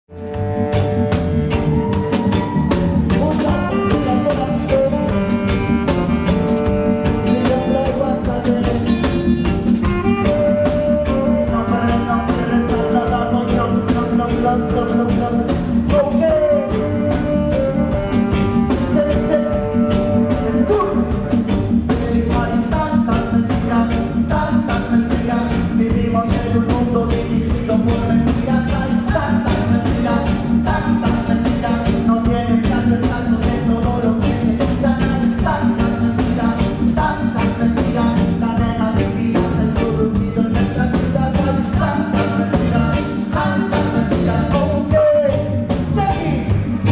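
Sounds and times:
bass: 0:00.0 - 0:46.9
tenor saxophone melody: 0:00.1 - 0:24.2
person singing through pa: 0:00.3 - 0:46.9
drum beat: 0:00.4 - 0:38.8.

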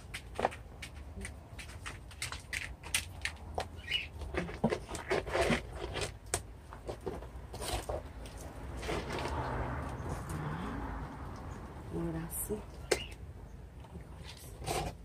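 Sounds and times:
gloved hands scraping potting soil: 0:00.0 - 0:10.4, 0:14.2 - 0:15.0.

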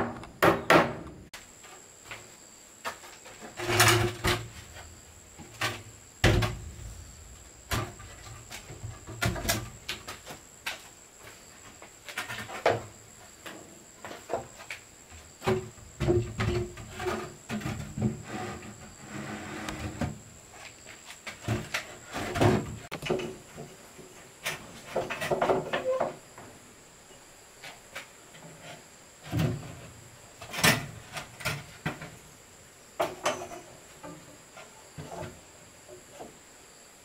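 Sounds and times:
wooden knocks and scrapes: 0:00.0 - 0:26.5.

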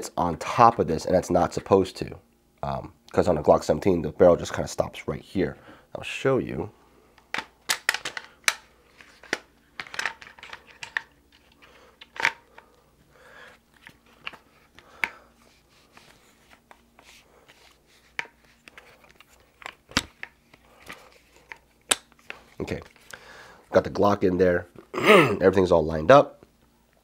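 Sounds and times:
plastic and metal clicks and rattles: 0:07.2 - 0:12.4.

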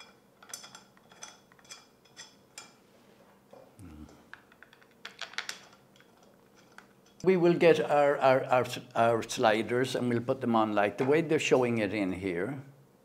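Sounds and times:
metal parts clicking and clinking: 0:00.0 - 0:02.8, 0:04.3 - 0:07.2.

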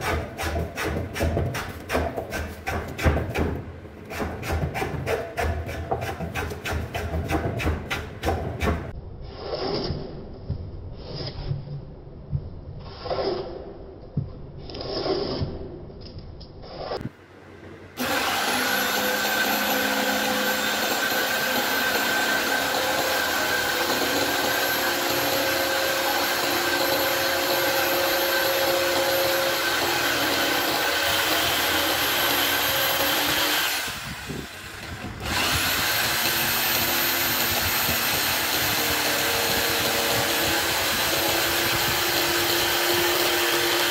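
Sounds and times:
hand plane shaving wood: 0:04.1 - 0:08.9
electric jigsaw cutting wood: 0:18.0 - 0:43.9.

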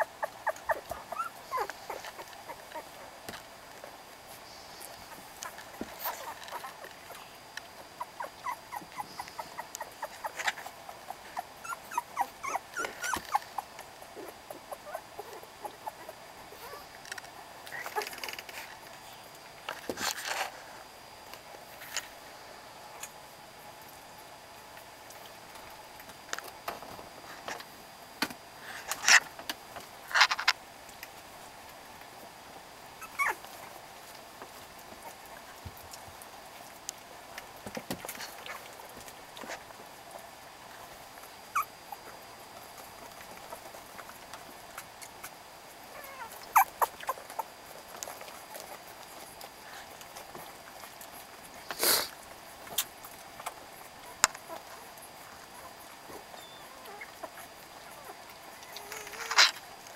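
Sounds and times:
puppies whimpering and squeaking: 0:00.0 - 0:03.2, 0:03.8 - 0:16.9, 0:33.0 - 0:33.6, 0:41.5 - 0:42.1, 0:45.9 - 0:49.4, 0:53.4 - 0:59.6.

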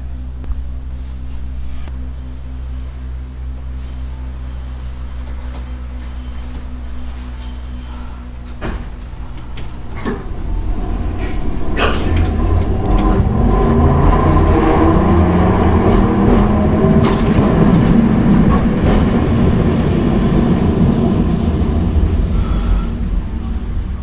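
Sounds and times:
tram motors growling: 0:01.5 - 0:24.0
wheels clicking on rails: 0:07.8 - 0:23.0.

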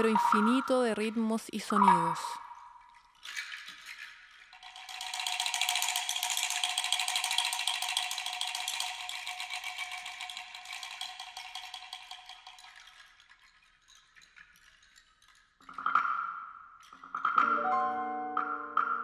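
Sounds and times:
shaken rattle: 0:00.0 - 0:16.1.

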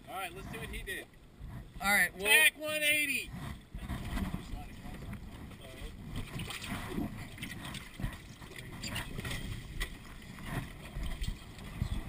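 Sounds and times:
water splashing against hull: 0:02.8 - 0:12.0.

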